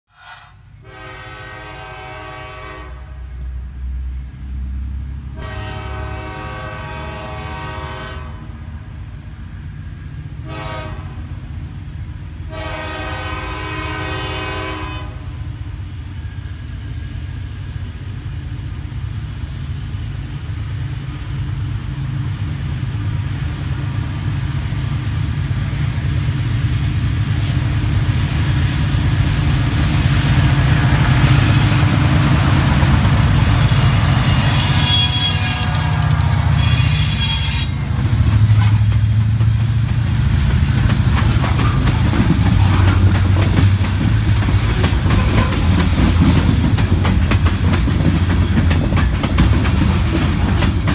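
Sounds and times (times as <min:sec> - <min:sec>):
locomotive horn blasts: 0:00.1 - 0:03.4, 0:05.4 - 0:08.5, 0:10.4 - 0:11.3, 0:12.5 - 0:15.4, 0:33.8 - 0:38.9, 0:45.0 - 0:45.8
locomotive engine rumbling: 0:00.4 - 0:50.9.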